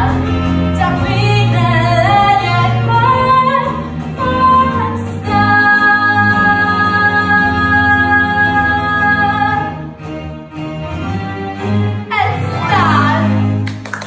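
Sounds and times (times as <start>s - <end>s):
woman singing: 0.0s - 9.8s, 12.1s - 13.5s
instrumental accompaniment: 0.0s - 14.0s.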